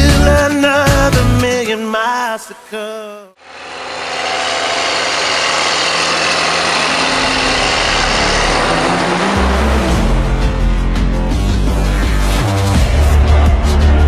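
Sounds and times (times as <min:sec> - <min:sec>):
pop song singing: 0:00.0 - 0:03.4
harvest machinery engine hum: 0:03.4 - 0:11.1.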